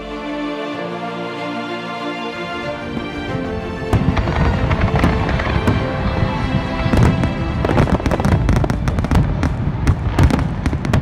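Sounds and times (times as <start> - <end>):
music: 0.0 - 11.0
fireworks bangs and crackles: 2.8 - 11.0.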